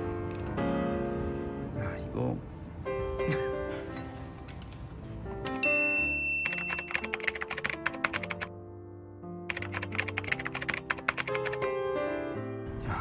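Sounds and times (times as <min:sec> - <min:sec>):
light background music: 0:00.0 - 0:13.0
keyboard typing clicks: 0:06.4 - 0:08.5, 0:09.5 - 0:11.7.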